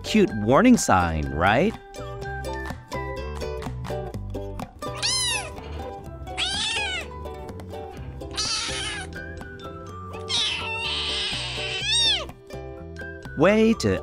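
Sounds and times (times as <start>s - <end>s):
background music: 0.0s - 14.0s
kitten meowing: 4.8s - 5.6s, 6.4s - 7.2s, 8.3s - 9.3s, 10.2s - 12.4s.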